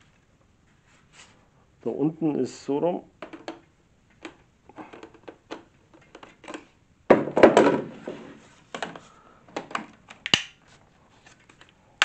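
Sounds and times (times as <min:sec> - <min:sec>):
plastic parts clicking and knocking: 0:03.2 - 0:07.9, 0:08.7 - 0:10.5.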